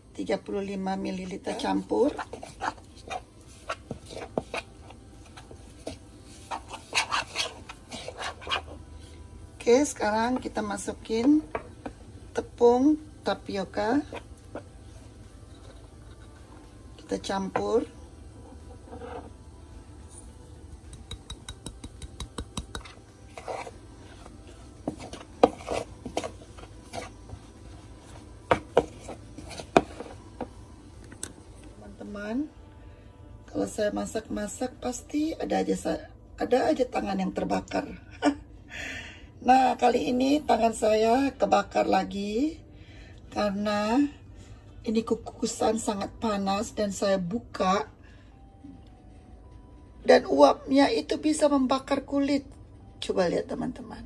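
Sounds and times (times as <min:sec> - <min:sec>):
spoon scraping in a bowl: 0:01.2 - 0:09.2, 0:15.4 - 0:16.7, 0:18.4 - 0:19.4, 0:21.0 - 0:30.5
utensil knocking against bowl: 0:20.9 - 0:23.0.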